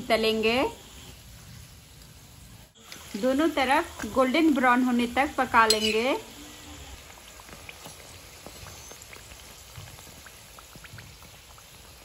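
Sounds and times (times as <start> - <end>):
oil sizzling with pops: 0.0 - 12.0.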